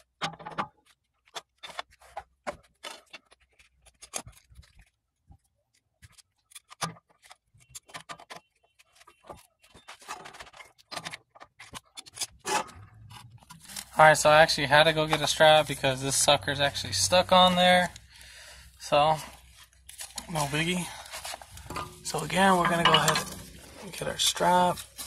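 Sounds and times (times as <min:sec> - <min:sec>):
scraping: 0:12.4 - 0:25.0.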